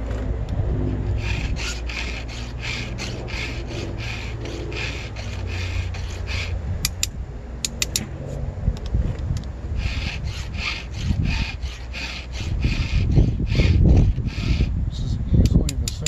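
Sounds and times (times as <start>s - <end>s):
file rasping on chainsaw chain: 1.0s - 8.0s, 9.8s - 14.7s
sharp metal clicks: 1.2s - 8.1s, 15.4s - 16.0s.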